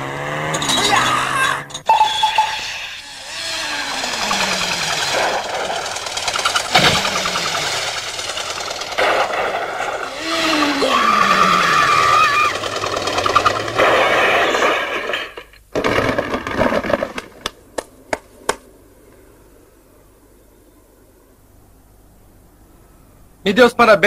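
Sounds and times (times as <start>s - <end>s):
high squeal: 0.1s - 5.4s, 10.0s - 14.5s
cartoon crashing through boxes: 0.1s - 17.4s.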